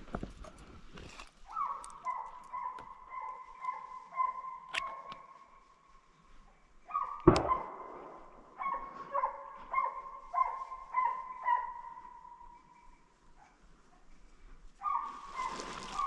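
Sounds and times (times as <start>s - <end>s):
hunting dogs baying: 1.4s - 5.5s, 6.8s - 16.0s
sharp loud crack: 7.2s - 8.3s.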